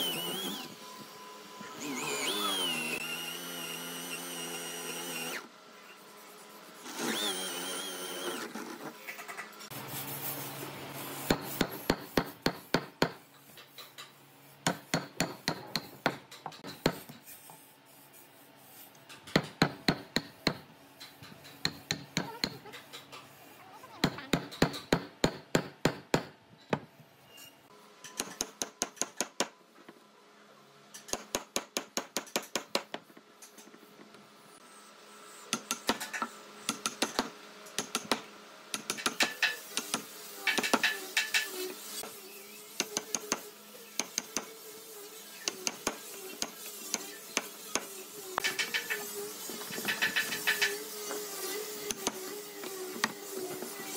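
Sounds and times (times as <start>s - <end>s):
electric drill whining: 0.0s - 5.5s, 6.9s - 8.5s.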